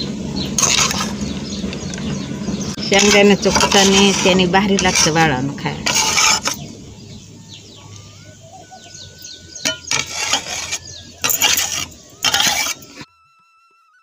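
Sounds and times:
metal spatula scraping pan: 0.4 - 6.8, 9.0 - 13.1.

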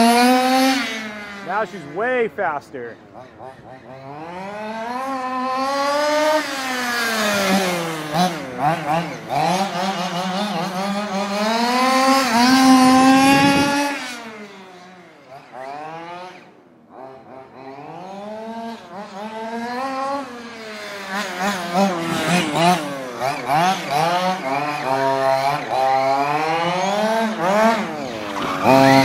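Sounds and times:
small two-stroke engine revving: 0.0 - 29.0.

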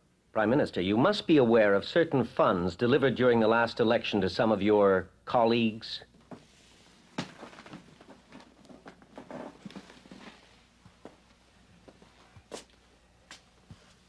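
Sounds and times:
soft footsteps: 6.2 - 14.0
chair creaking: 6.3 - 10.6
clothing rustling: 6.3 - 14.0.

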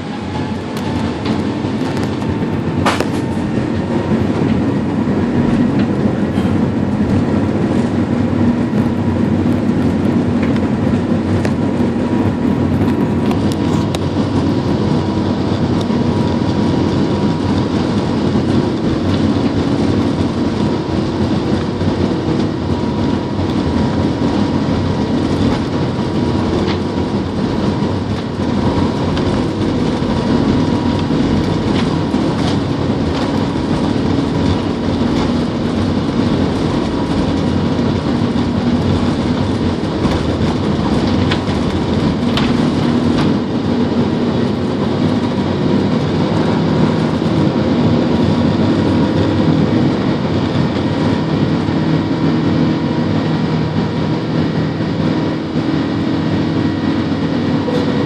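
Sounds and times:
aircraft cabin rumble and hum: 0.0 - 58.0.

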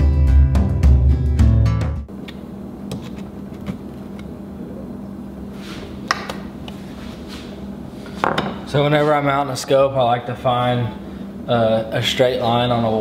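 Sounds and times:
background music: 0.0 - 2.1
steady low hum: 2.1 - 13.0.

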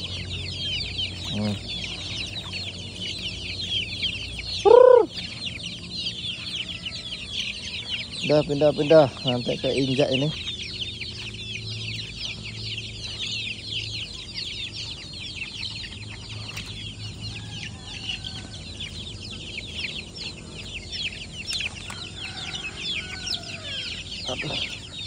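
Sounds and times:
lower chicken calls: 0.0 - 5.7, 15.9 - 25.0
chicks peeping: 0.0 - 25.0.

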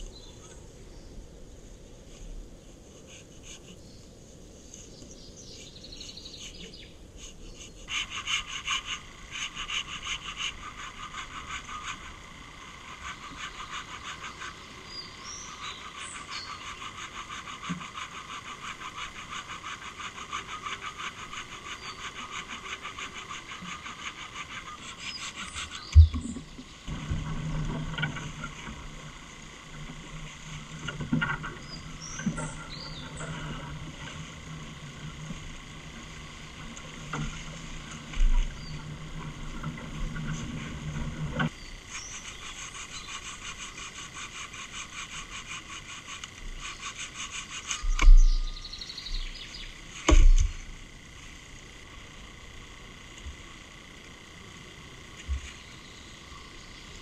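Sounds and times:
hand saw cutting a log: 7.2 - 12.2, 12.8 - 25.9, 41.9 - 48.6
bird chirps: 31.5 - 33.4, 47.6 - 49.8
wood thumping on ground: 50.1 - 50.6.

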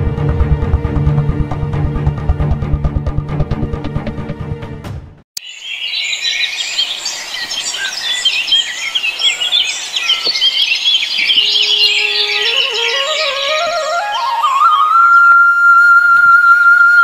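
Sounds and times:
small birds chirping: 5.4 - 14.4
musical melody: 11.2 - 17.0.

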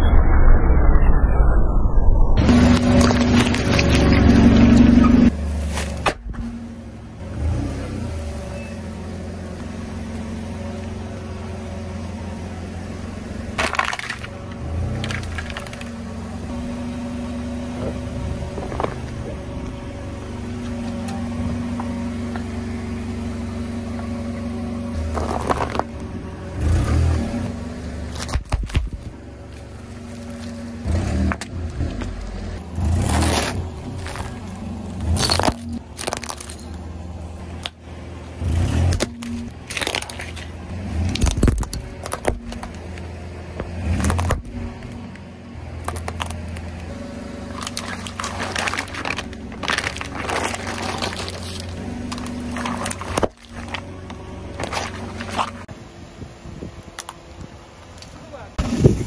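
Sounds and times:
loud sound cutting off: 0.0 - 5.3
car engine running at low speed: 2.1 - 59.0
tyre crushing object crack: 2.5 - 4.3, 13.6 - 14.3, 14.9 - 16.0, 25.0 - 26.0, 28.1 - 29.2, 32.9 - 36.8, 38.8 - 43.0, 43.6 - 45.0, 45.8 - 55.7.

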